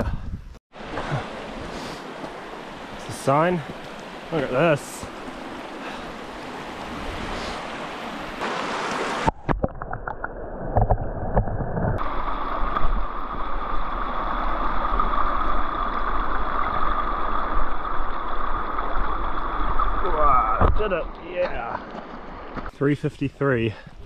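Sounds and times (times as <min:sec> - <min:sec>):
wind: 0:00.0 - 0:24.0
running water: 0:00.8 - 0:24.0.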